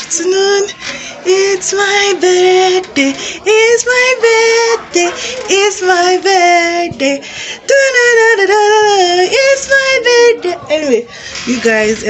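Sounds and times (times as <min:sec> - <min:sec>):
woman singing held notes: 0:00.0 - 0:12.0.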